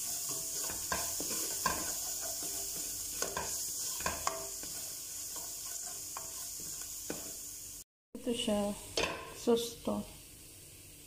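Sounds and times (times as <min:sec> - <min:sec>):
spatula scraping and knocking pot: 0:00.0 - 0:07.4
tomato paste sizzling in oil: 0:00.0 - 0:11.0.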